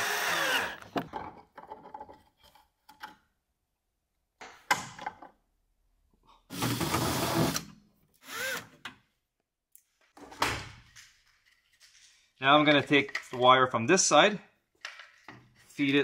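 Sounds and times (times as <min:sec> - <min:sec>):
cordless drill running: 0:00.0 - 0:00.8, 0:08.2 - 0:08.7.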